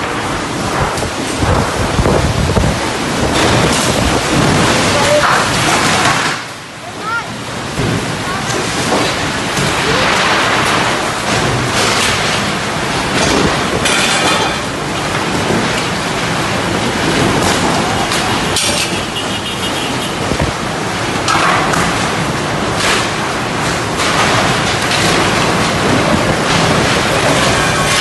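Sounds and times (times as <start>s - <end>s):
strong wind rushing: 0.0s - 5.8s, 19.9s - 21.1s
driving rain: 0.0s - 28.0s.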